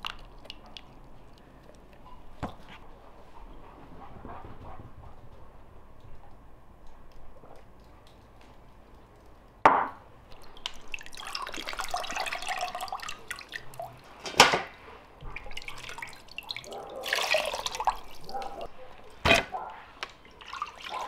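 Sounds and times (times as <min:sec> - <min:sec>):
water splashing and dripping: 0:00.0 - 0:01.8, 0:10.2 - 0:14.5, 0:15.2 - 0:21.0.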